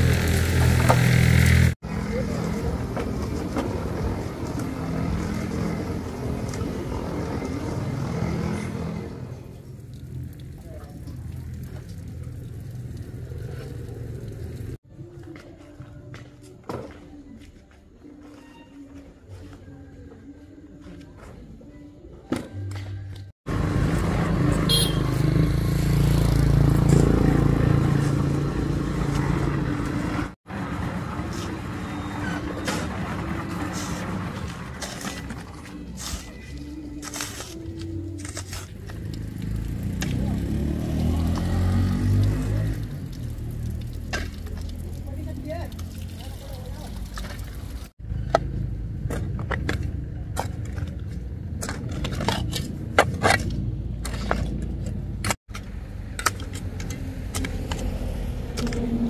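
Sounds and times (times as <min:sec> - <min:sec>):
engine running: 0:00.0 - 0:14.8, 0:23.5 - 0:36.8.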